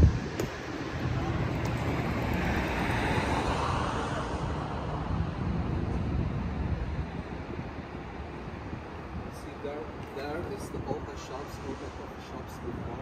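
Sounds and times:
vehicle passing: 0.0s - 8.9s
low traffic rumble: 0.0s - 13.0s.

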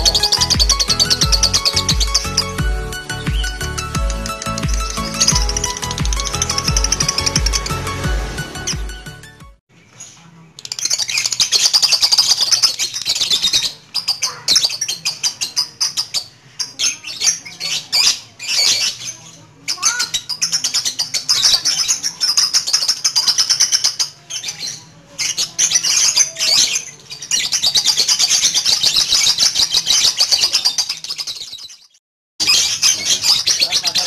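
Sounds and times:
lovebird chattering trill: 0.0s - 7.9s.

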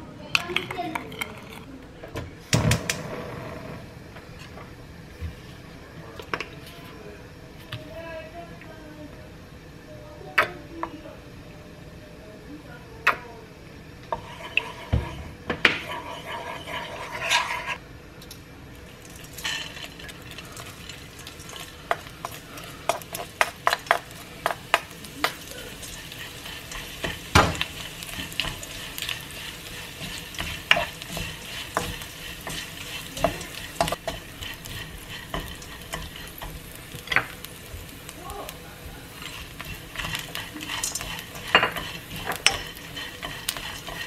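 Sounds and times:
utensils scraping a wok: 0.4s - 1.8s, 14.0s - 17.8s, 18.8s - 44.0s
oil sizzling: 13.5s - 44.0s.

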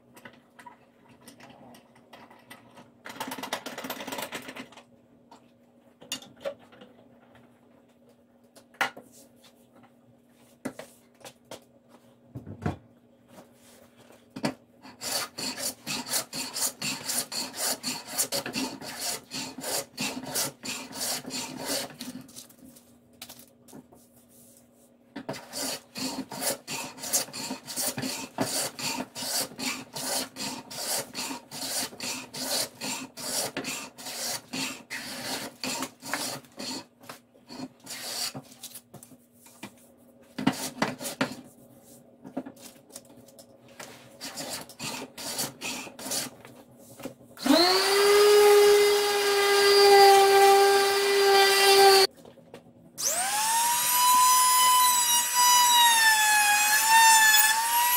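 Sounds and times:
hand plane shaving wood: 14.9s - 22.1s, 25.3s - 36.9s.

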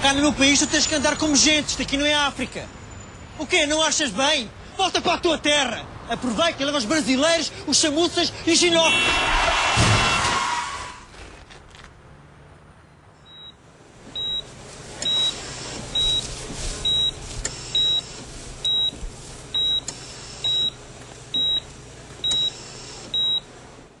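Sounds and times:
background noise: 0.0s - 24.0s
heart monitor beeping: 13.2s - 13.6s, 14.2s - 23.5s.

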